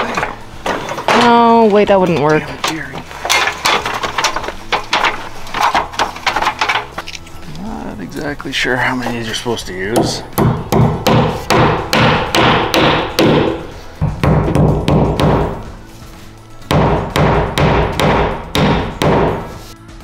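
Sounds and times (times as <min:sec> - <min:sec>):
background music: 0:00.0 - 0:20.0
hammer striking nails: 0:10.0 - 0:15.7, 0:16.7 - 0:19.6.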